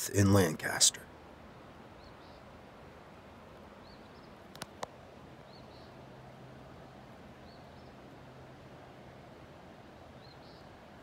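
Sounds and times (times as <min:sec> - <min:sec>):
steady outdoor hiss: 0:00.0 - 0:11.0.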